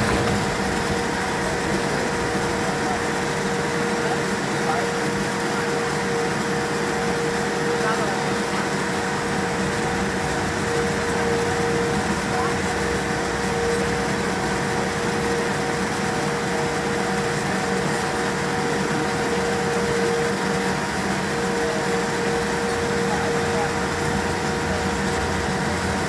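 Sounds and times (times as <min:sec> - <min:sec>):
steady cabin hum: 0:00.0 - 0:04.9
jet engines at low thrust: 0:00.0 - 0:26.0.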